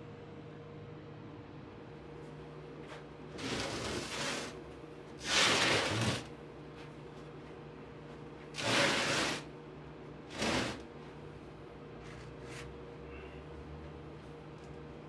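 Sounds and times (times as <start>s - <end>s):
faint steady hum: 0.0s - 15.0s
blocks scraping on wooden board: 5.2s - 6.3s, 8.6s - 9.4s, 10.3s - 10.8s.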